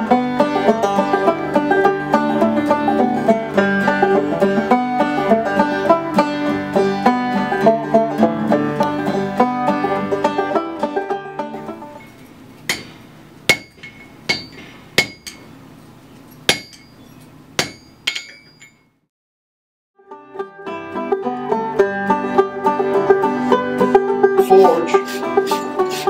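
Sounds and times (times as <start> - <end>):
banjo music: 0.0 - 12.2, 20.0 - 26.0
hammer ringing on anvil: 12.7 - 15.5, 16.4 - 18.9.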